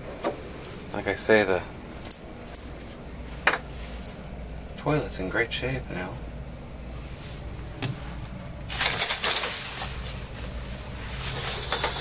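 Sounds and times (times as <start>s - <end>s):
shower curtain rustling and scraping: 8.7s - 12.0s.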